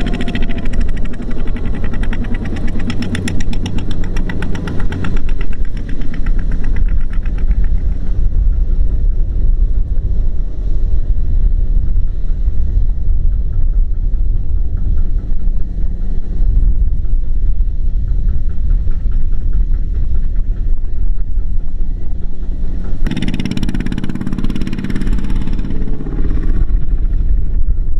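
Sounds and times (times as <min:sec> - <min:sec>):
diesel engine idling: 0:00.0 - 0:08.7
fast engine clatter: 0:00.0 - 0:27.9.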